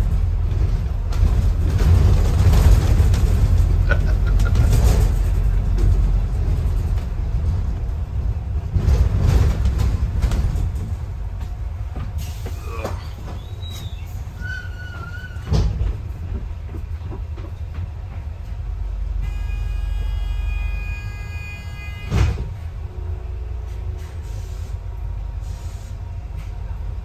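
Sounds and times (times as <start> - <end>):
bus body rattling and knocking: 0.0 - 19.2, 21.0 - 24.0
bus engine and road rumble: 0.0 - 27.0
brake squeals: 12.2 - 15.7.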